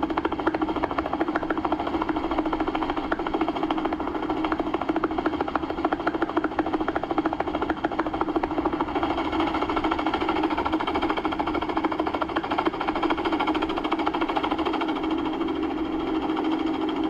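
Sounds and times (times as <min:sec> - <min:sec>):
helicopter engine drone: 0:00.0 - 0:17.0
helicopter rotor chop: 0:00.0 - 0:17.0.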